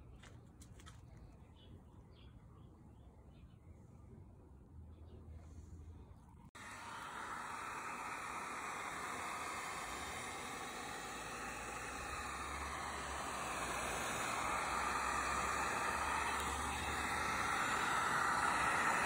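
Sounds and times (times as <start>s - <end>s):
heat gun blowing air: 6.6s - 19.0s.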